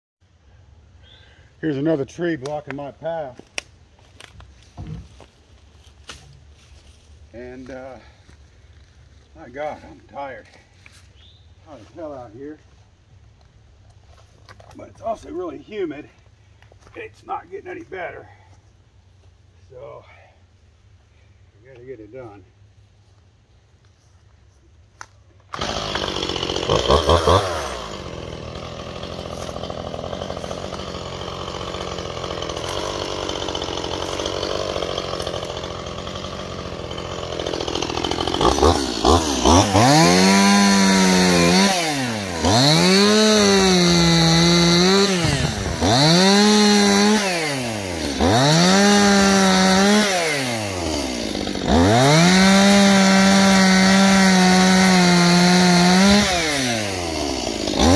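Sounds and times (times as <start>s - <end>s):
chainsaw revving and cutting: 25.5s - 57.9s.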